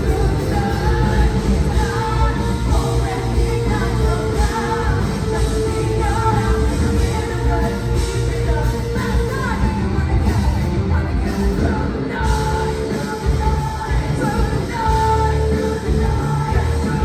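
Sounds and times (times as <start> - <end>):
distorted guitars: 0.0 - 17.0
drums: 0.0 - 17.0
heavy bass: 0.0 - 17.0
live hard rock band: 0.0 - 17.0.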